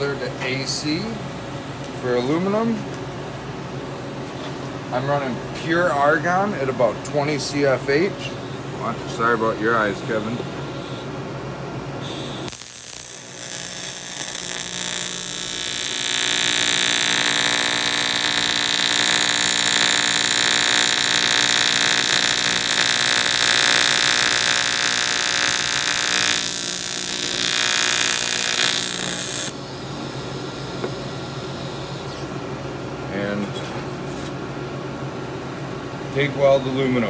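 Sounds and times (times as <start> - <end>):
welding arc buzzing: 12.0 - 29.7.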